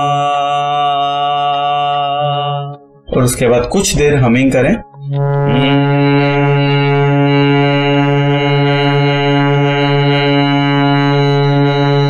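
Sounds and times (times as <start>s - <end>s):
harmonium holding a note: 5.1s - 12.0s.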